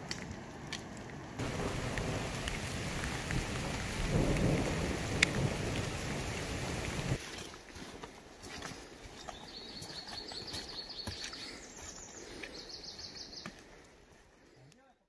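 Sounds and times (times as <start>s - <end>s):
rain: 0.0s - 9.5s
wind buffeting microphone: 1.4s - 7.2s.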